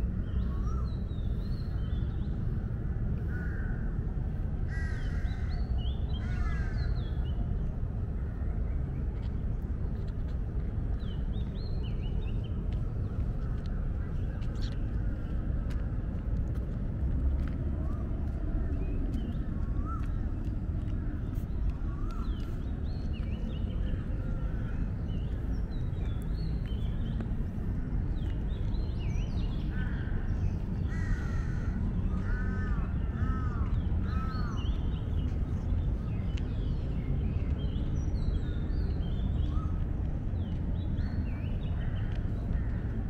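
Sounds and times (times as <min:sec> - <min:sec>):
low background rumble: 0:00.0 - 0:43.0
crows cawing: 0:03.3 - 0:03.8, 0:04.7 - 0:05.5, 0:06.2 - 0:06.8, 0:30.9 - 0:34.3
small birds chirping: 0:17.7 - 0:43.0.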